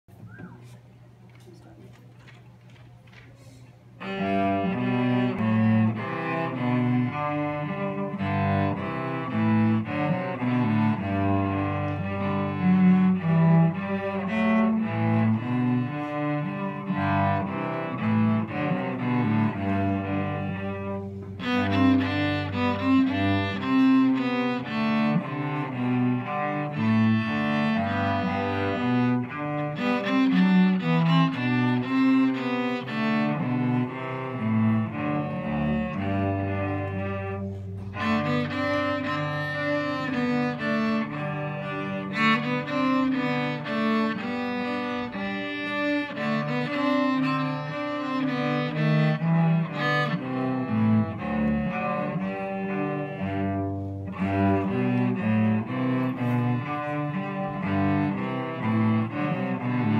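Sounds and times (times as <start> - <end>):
cello bowed: 4.0 - 59.9.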